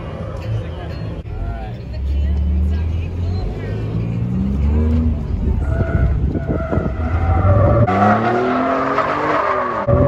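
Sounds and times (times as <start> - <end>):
truck engine rumbling and revving: 0.0 - 10.0
tires squealing: 4.3 - 10.0.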